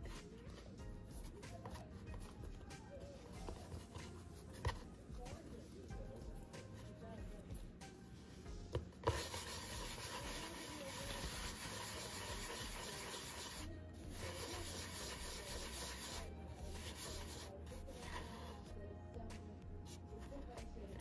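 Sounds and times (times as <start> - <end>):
dough rubbing on wooden board: 0.0 - 5.2, 8.7 - 18.7.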